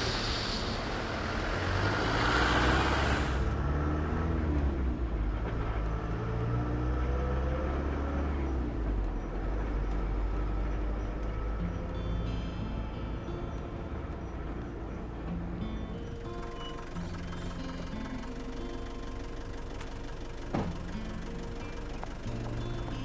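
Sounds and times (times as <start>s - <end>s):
loud hiss: 0.0s - 3.5s
vehicle engine rumbling: 0.0s - 23.0s.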